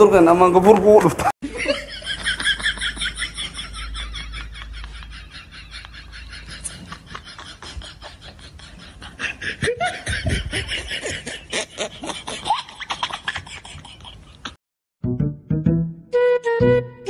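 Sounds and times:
men laughing: 0:01.2 - 0:14.6.

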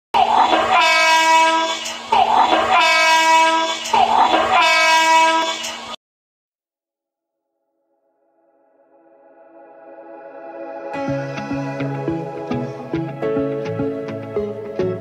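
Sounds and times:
train horn blasts: 0:00.7 - 0:01.8, 0:02.7 - 0:03.7, 0:04.5 - 0:05.6.

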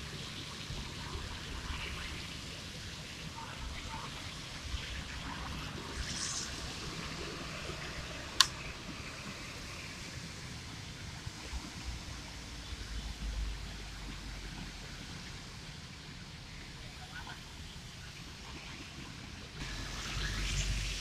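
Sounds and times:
tyres hissing on wet road: 0:00.0 - 0:21.0.

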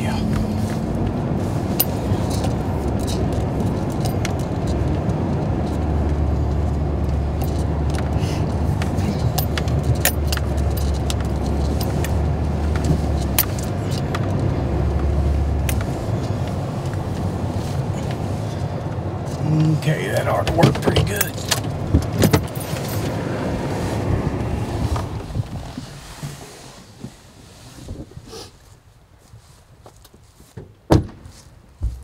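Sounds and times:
truck engine and road rumble: 0:00.0 - 0:32.0
keys jangling: 0:01.7 - 0:04.9, 0:07.3 - 0:12.2, 0:13.1 - 0:14.1, 0:21.1 - 0:23.2.

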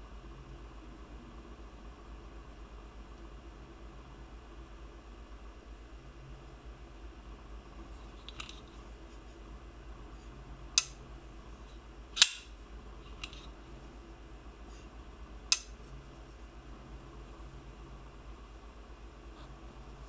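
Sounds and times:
knife blade snapping open and shut: 0:12.2 - 0:12.5.

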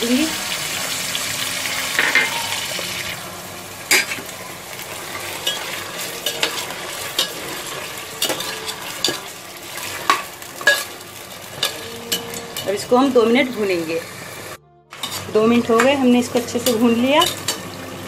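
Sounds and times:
meat sizzling in oil: 0:00.0 - 0:15.2, 0:16.4 - 0:18.0
metal spoon scraping pot: 0:05.4 - 0:10.9, 0:11.5 - 0:13.0, 0:15.0 - 0:17.7.

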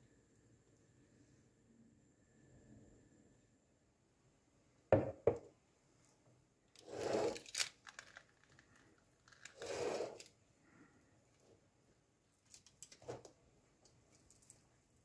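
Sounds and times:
metal cake pan knocking on counter: 0:05.0 - 0:05.4
knife scraping inside a pan: 0:06.8 - 0:07.4, 0:09.6 - 0:10.3.

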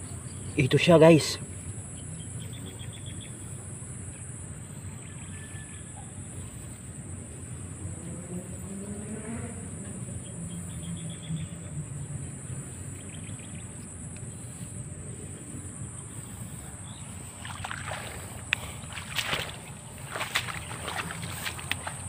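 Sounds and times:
grass and leaves rustling: 0:11.4 - 0:22.0.

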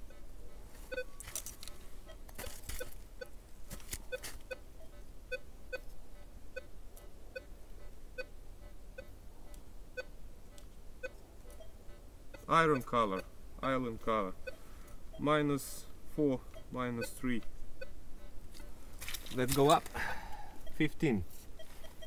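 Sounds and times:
metal detector beeping: 0:00.0 - 0:03.4, 0:11.0 - 0:13.3, 0:16.5 - 0:18.7, 0:20.6 - 0:20.9, 0:21.6 - 0:22.0
rustling: 0:00.5 - 0:04.6.

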